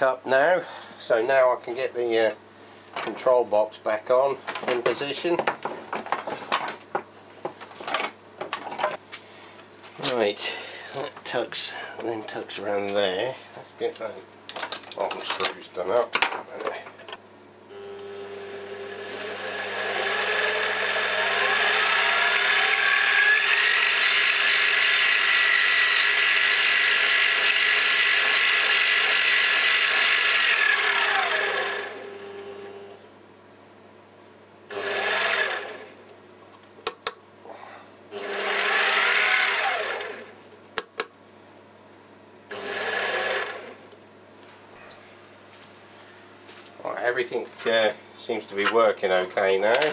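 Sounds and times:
lathe motor whine: 17.7 - 33.0, 34.7 - 36.0, 38.2 - 40.4, 42.5 - 44.0.

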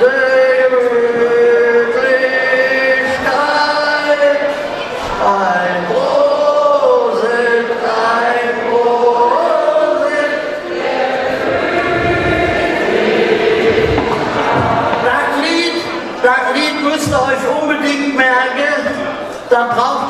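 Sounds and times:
man singing slow melody: 0.0 - 4.5.

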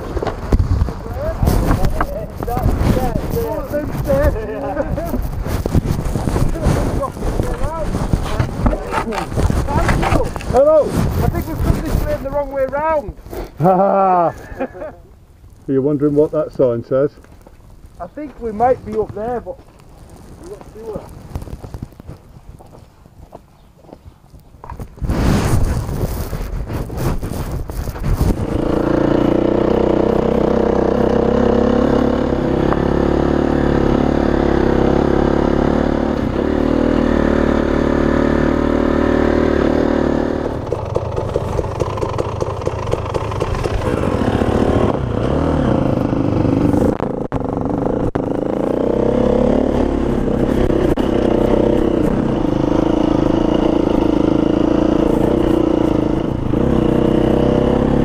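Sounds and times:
dirt bike engine running: 0.0 - 13.0, 26.2 - 58.0.

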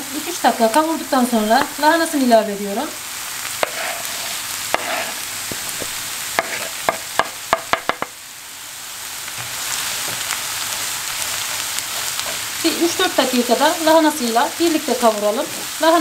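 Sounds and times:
vegetables sizzling in a frying pan: 0.0 - 16.0
wooden spoon knocking on pan: 4.7 - 8.2.

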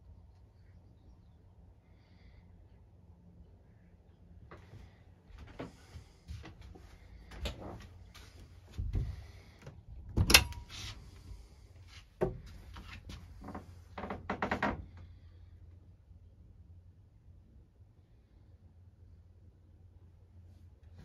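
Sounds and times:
knocks and bumps in boat cabin: 8.7 - 9.4, 12.2 - 12.6.

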